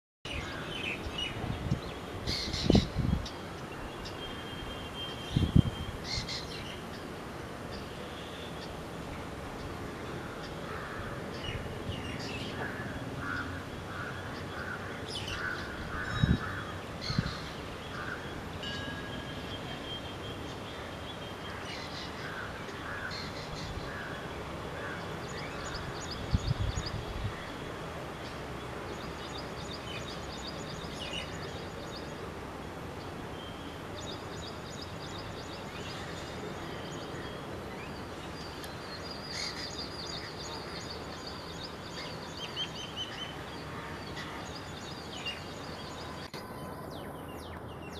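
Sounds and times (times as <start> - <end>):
steady outdoor hiss: 0.3 - 47.9
wild birds calling: 9.4 - 32.2, 33.3 - 47.9.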